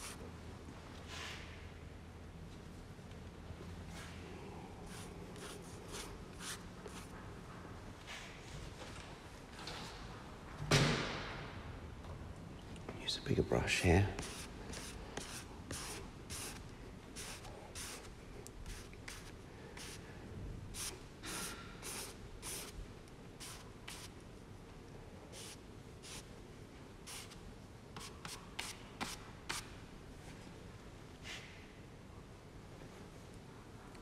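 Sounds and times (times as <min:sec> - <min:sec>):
paintbrush brushing on paper: 0:00.0 - 0:00.2, 0:04.9 - 0:07.1, 0:14.0 - 0:20.1, 0:20.7 - 0:22.8, 0:23.4 - 0:24.1, 0:25.3 - 0:26.3.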